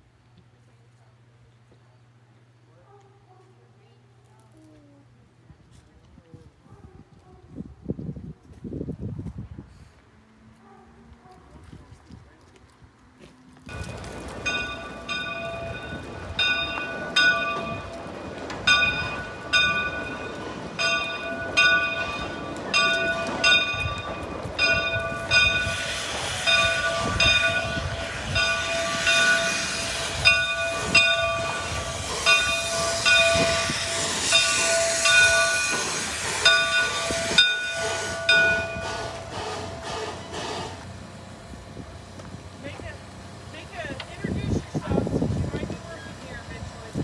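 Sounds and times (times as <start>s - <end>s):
locomotive bell ringing: 13.7s - 40.6s
steam hissing: 18.6s - 47.0s.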